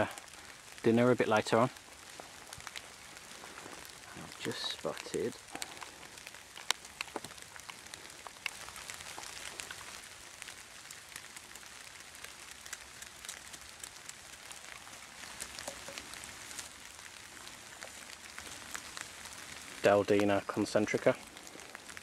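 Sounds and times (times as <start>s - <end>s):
light rain dripping on leaves: 0.0s - 22.0s.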